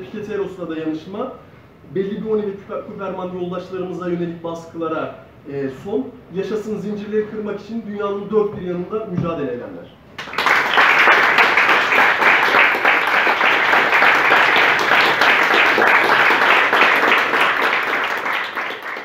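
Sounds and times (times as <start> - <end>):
audience applauding: 10.2 - 19.0.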